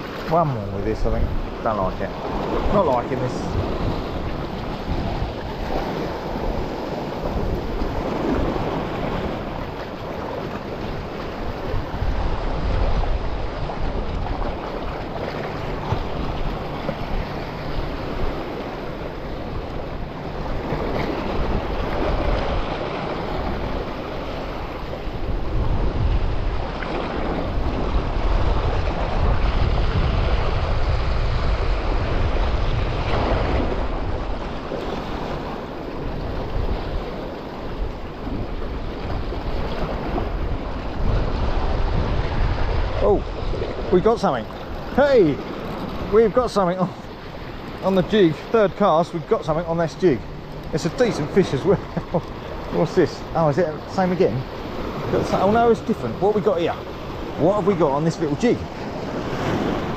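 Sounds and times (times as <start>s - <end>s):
waves washing against rocks: 0.0s - 59.9s
wind buffeting microphone: 0.0s - 59.9s.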